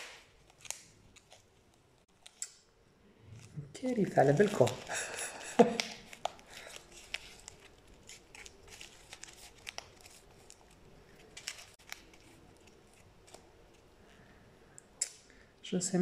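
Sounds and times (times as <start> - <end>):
plastic cup crinkling: 3.2 - 13.9.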